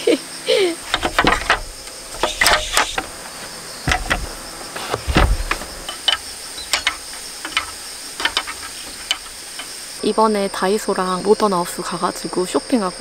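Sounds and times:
insects droning: 0.0 - 13.0
wood knocking and clicking: 0.8 - 3.3, 3.9 - 9.8
heavy wooden thumps: 0.8 - 9.9.

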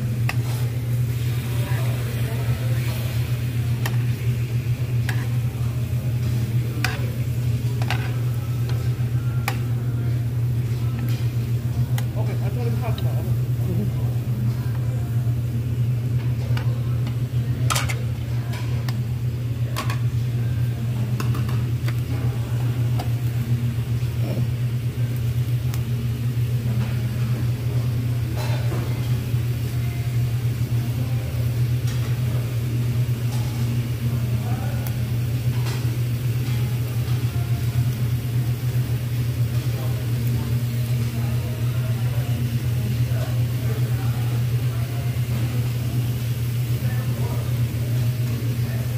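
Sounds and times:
low machine hum: 0.0 - 48.9
meat sizzling on a grill: 0.0 - 48.9
tongs clicking against grill: 3.8 - 4.0.

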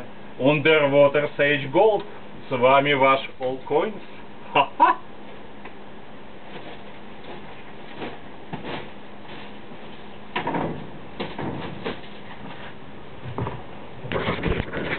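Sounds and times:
steady low hum: 0.0 - 14.9
knocks and rustles of handling: 6.4 - 14.9.

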